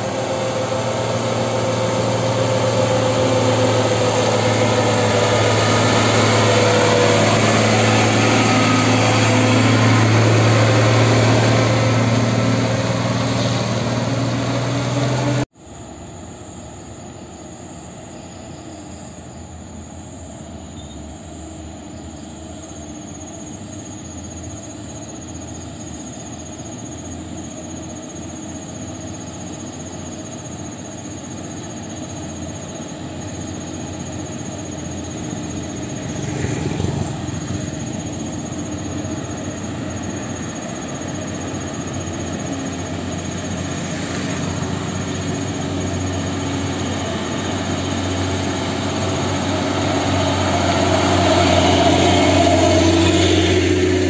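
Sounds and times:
high-pitched squeal: 0.0s - 15.5s, 33.2s - 54.0s
dump truck diesel engines: 0.0s - 54.0s.

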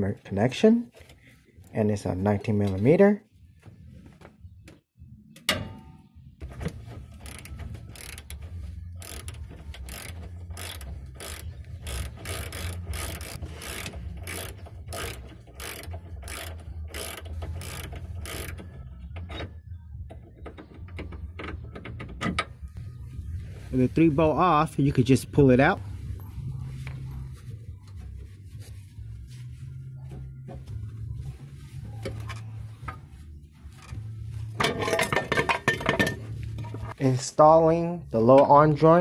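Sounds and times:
socket ratchet clicking: 7.2s - 8.4s, 9.0s - 18.6s.

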